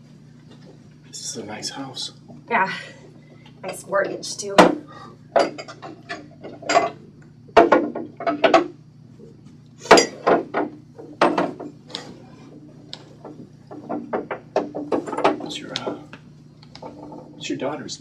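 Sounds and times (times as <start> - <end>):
clatter of dishes: 5.4 - 7.0, 7.6 - 8.7, 9.8 - 12.3, 13.1 - 16.0, 16.8 - 17.4.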